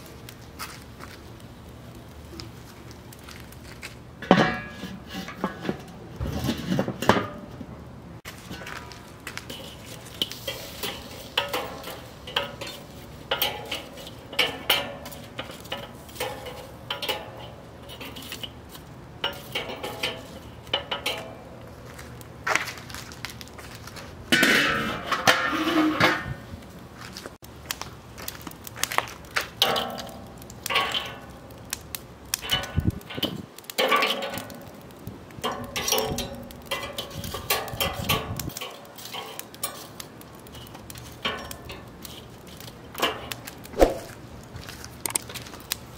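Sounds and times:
metal tool scraping on grill grate: 4.2 - 7.5, 8.4 - 21.4, 24.3 - 26.4, 29.6 - 31.3, 32.4 - 44.1.

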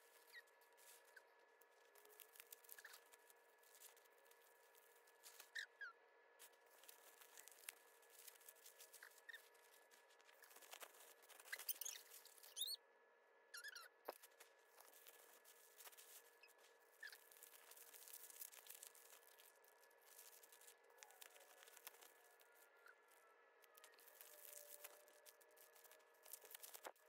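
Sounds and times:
bubble wrap and paper rustling: 0.0 - 5.6, 6.4 - 12.7, 14.1 - 27.0
short squeaks: 10.5 - 12.8, 13.5 - 15.3, 16.2 - 18.7.

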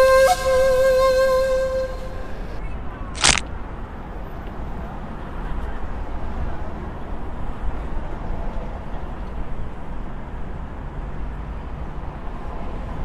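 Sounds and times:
brief sharp noise: 3.2 - 3.4.

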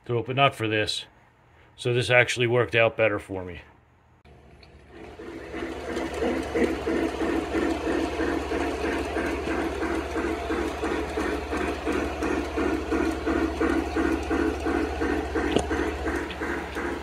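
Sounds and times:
motor and gear hum: 4.3 - 17.0
rhythmic mechanical clatter: 4.4 - 17.0.

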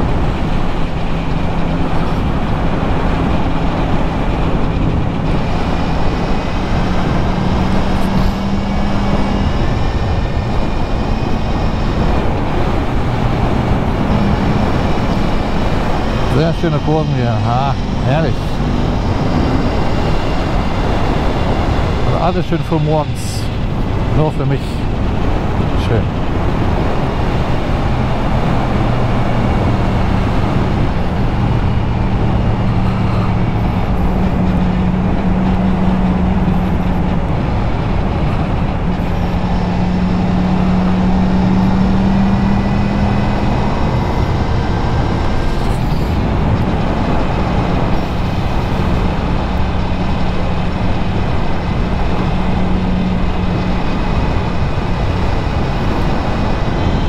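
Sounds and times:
motorcycle engine running: 0.0 - 22.1
wind and road noise: 0.0 - 57.0.

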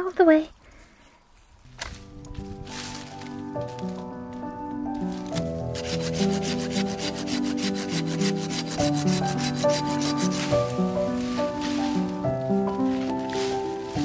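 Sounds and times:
background music with held notes: 1.7 - 14.0
hand saw cutting branch: 5.2 - 12.1.

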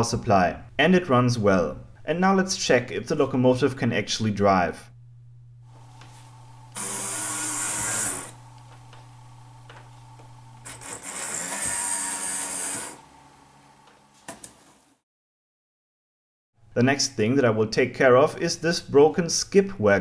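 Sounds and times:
toy train motor whirring: 6.8 - 8.4, 10.6 - 13.0.

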